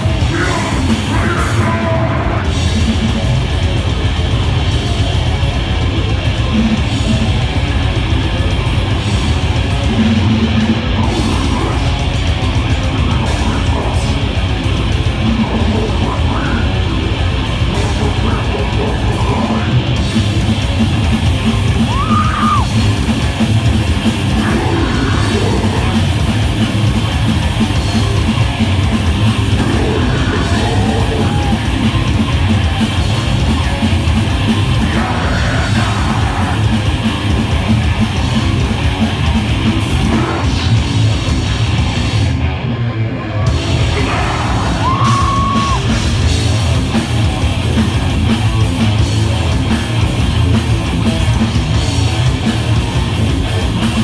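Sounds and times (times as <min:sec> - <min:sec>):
fast dense drumming: 0:00.0 - 0:42.6, 0:43.4 - 0:54.0
bass guitar: 0:00.0 - 0:54.0
distorted electric guitars: 0:00.0 - 0:54.0
deep growled vocals: 0:24.2 - 0:26.6, 0:29.2 - 0:32.4, 0:34.6 - 0:37.0, 0:39.7 - 0:41.5, 0:43.6 - 0:45.5.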